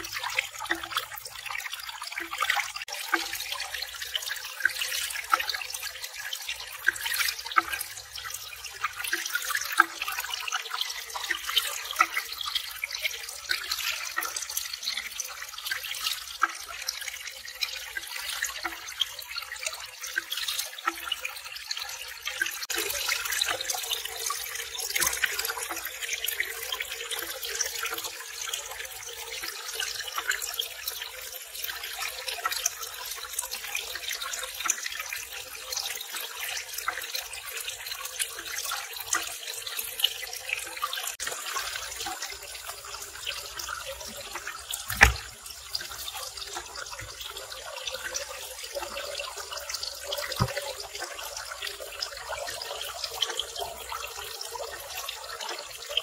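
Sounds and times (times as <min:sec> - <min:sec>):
water trickling into pond: 0:00.0 - 0:56.0.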